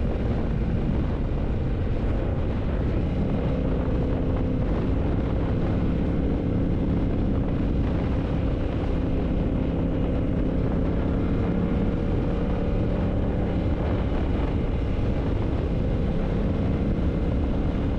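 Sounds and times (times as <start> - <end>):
motorcycle engine cruising: 0.0 - 17.9.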